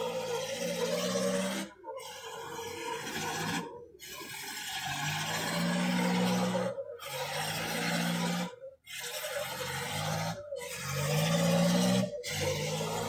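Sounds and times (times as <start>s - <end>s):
sled scraping across concrete: 0.0s - 13.0s
tractor engine under load: 0.0s - 13.0s.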